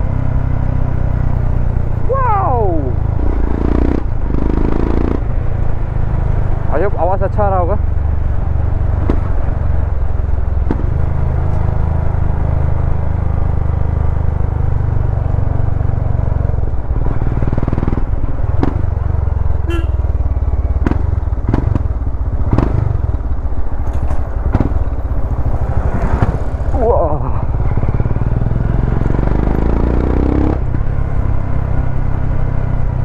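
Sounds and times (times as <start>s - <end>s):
motorcycle engine running: 0.0s - 33.0s
sharp knocks and rattles: 23.8s - 25.0s.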